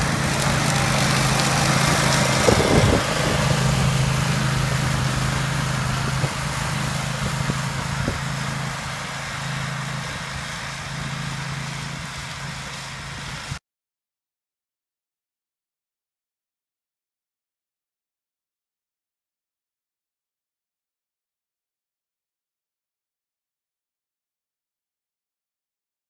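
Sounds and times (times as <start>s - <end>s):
ride-on mower engine humming: 0.0s - 13.6s.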